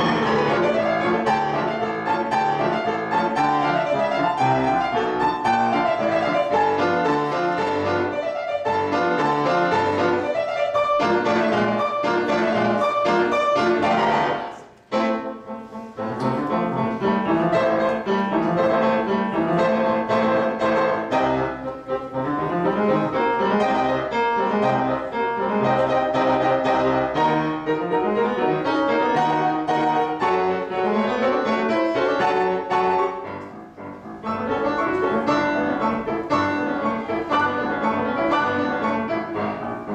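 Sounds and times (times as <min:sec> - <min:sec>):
classical piano piece: 0:00.0 - 0:39.9.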